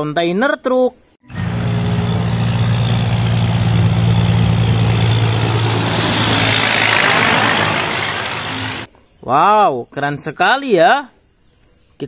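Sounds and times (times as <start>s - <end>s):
truck diesel engine humming: 1.3s - 8.9s
tyre and road noise: 1.3s - 8.9s.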